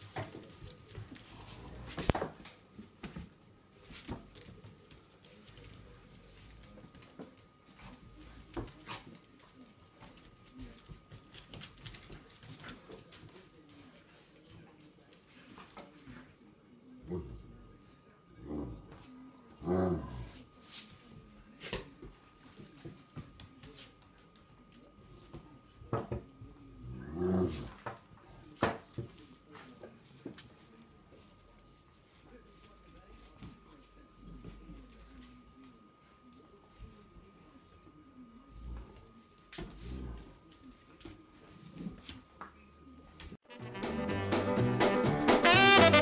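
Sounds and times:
paws scuffling on tiles: 0.0s - 16.4s
dogs growling: 18.4s - 18.9s, 19.6s - 20.4s, 26.8s - 27.8s.

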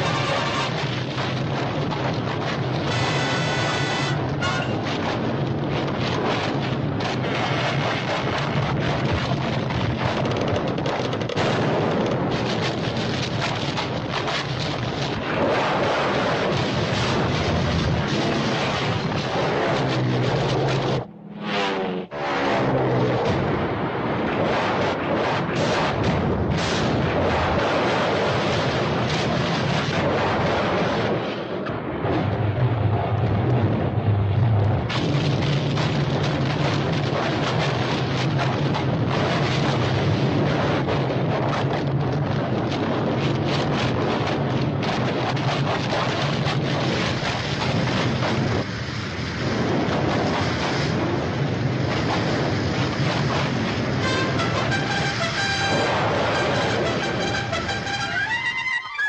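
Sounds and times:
brass music: 0.0s - 0.9s, 2.8s - 4.9s, 54.0s - 59.0s
low hum: 17.1s - 24.3s.

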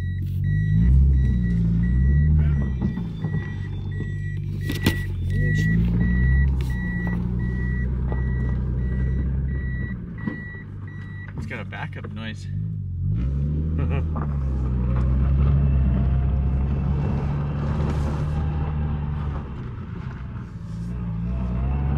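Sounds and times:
reversing warning beeps: 0.0s - 11.4s
car engine revving: 0.0s - 21.9s.

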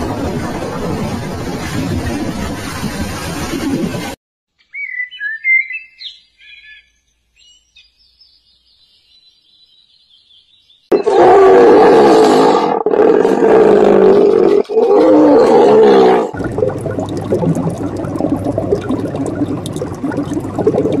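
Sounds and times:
low steady hum: 16.4s - 21.0s.

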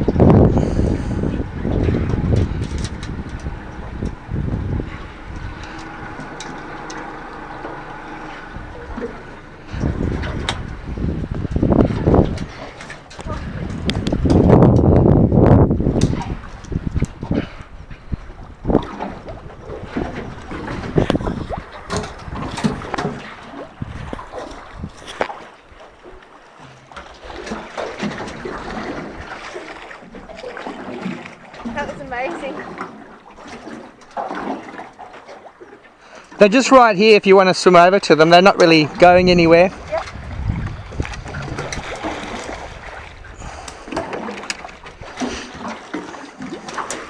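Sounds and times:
water lapping around boat: 0.0s - 47.0s
short sharp splashes: 26.6s - 36.4s, 38.6s - 47.0s.

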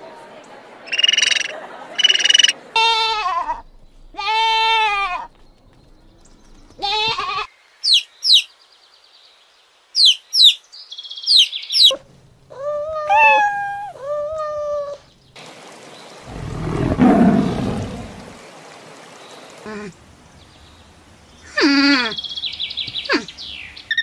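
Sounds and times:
cat meowing: 12.6s - 14.6s
drawn-out animal calls: 12.6s - 14.6s.

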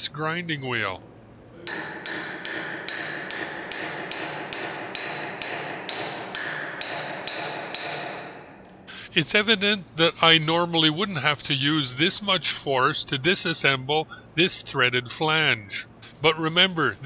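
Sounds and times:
hammer striking metal wrench: 1.6s - 8.9s.

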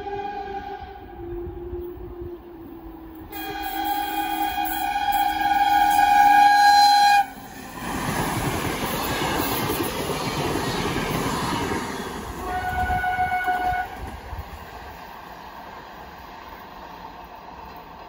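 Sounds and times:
train horn: 0.0s - 7.5s, 12.4s - 14.1s
train rumbling past on rails: 0.0s - 18.0s.

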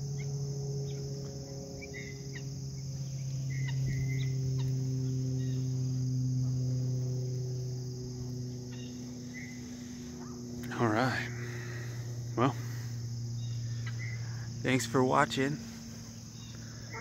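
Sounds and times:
crickets and insects buzzing: 0.0s - 17.0s
low hum: 0.0s - 17.0s
bird chirps: 1.8s - 5.8s, 8.6s - 10.4s, 13.3s - 14.6s, 16.0s - 17.0s.

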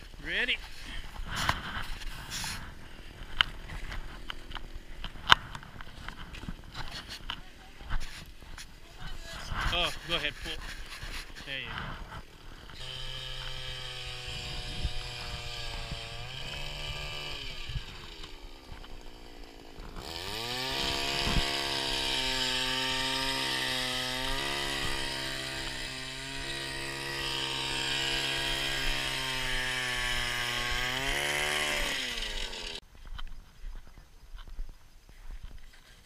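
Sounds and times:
ice auger engine revving: 9.3s - 32.8s.

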